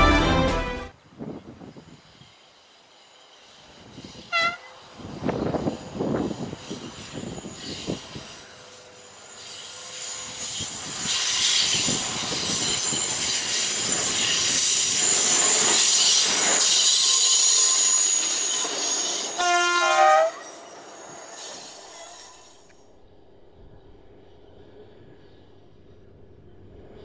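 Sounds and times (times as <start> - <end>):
two-note horn: 0.0 - 0.9
high wheel squeal: 1.6 - 22.8.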